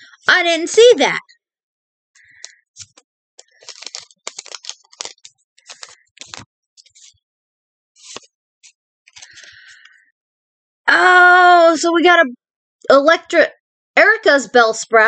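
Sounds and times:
cards and packaging crinkling: 2.2 - 7.1, 8.0 - 8.3, 9.1 - 9.9.

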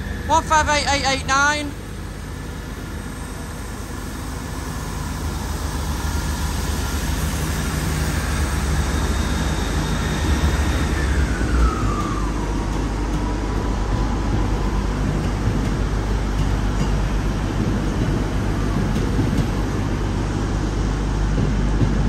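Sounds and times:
diesel train engines pulling away: 0.0 - 22.0
whine falling in pitch: 3.8 - 20.3.

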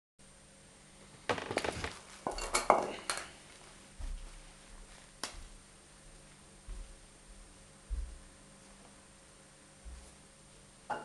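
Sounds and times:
dull low thumps: 6.6 - 8.3.

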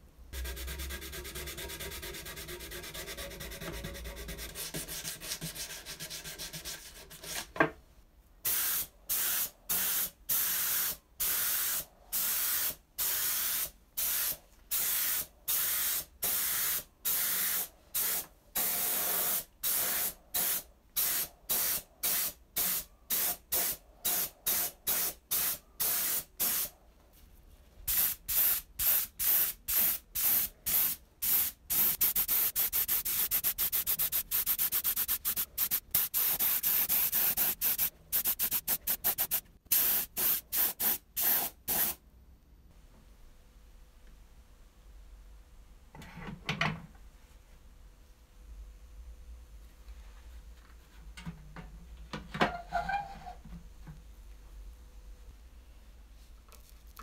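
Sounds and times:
spray gun hissing in bursts: 27.9 - 42.0.

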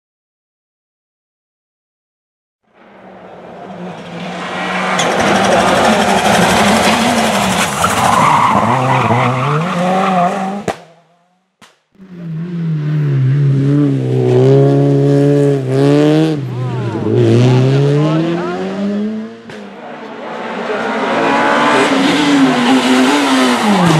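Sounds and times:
rally car engine revving: 2.8 - 11.4, 12.0 - 23.9.

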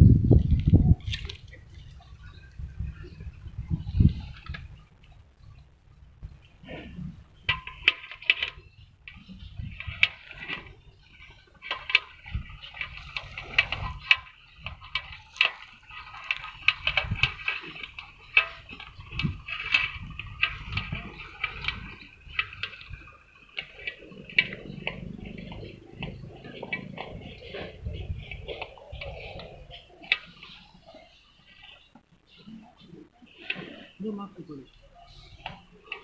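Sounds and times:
sharp clicks and scrapes: 6.6 - 34.0.

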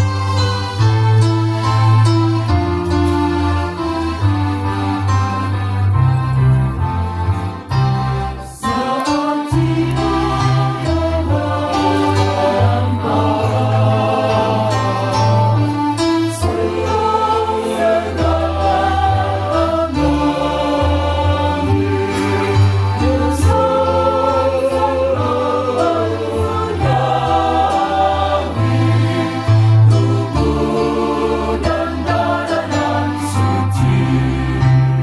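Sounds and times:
electronic keyboard: 0.0 - 35.0
choir singing: 8.4 - 35.0.

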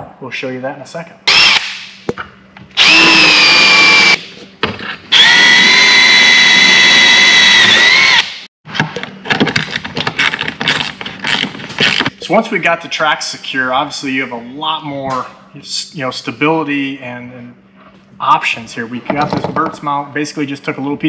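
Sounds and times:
cordless drill whining: 1.3 - 1.6, 2.8 - 4.2, 5.1 - 8.4.

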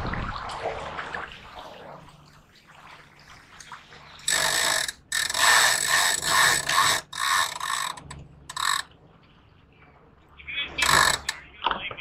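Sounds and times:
winch ratchet clicking: 4.2 - 8.9, 10.8 - 11.4.

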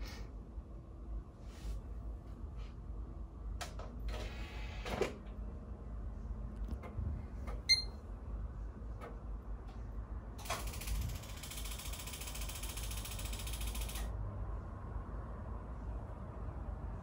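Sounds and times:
computer hum: 5.8 - 14.2
short high beep: 7.7 - 8.0.

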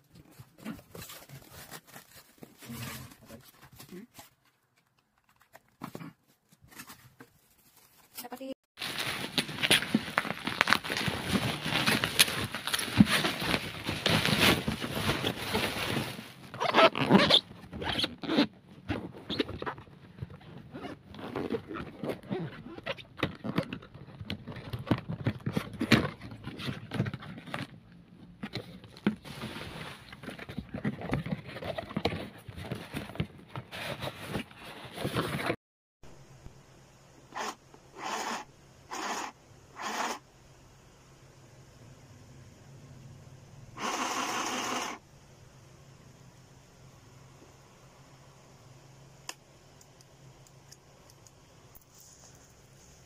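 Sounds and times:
foam packing rustling: 0.0 - 5.6, 6.3 - 27.8, 28.5 - 35.6
plastic mailer bag crinkling: 7.4 - 17.4
cardboard box scraping: 29.2 - 35.6.

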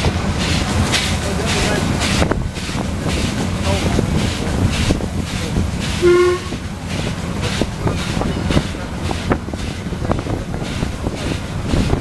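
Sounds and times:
steam locomotive running: 0.0 - 12.0
wheels clicking over rail joints: 0.0 - 12.0
locomotive whistle toot: 6.0 - 6.6.

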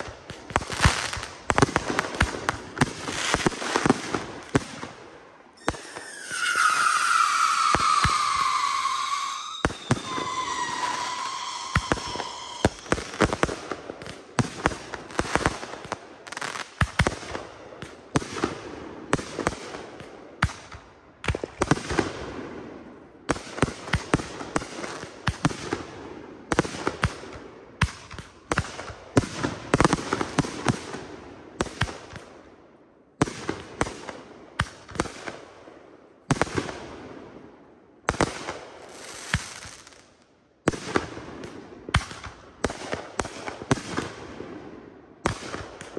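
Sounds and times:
firework shells bursting: 5.6 - 13.5
firework crackling: 5.6 - 14.2.

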